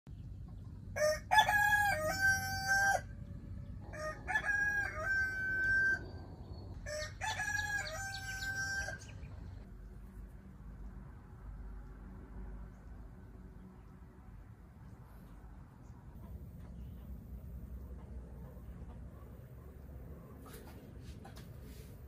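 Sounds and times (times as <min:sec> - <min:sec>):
rooster crowing: 0:01.0 - 0:03.1, 0:03.8 - 0:09.2.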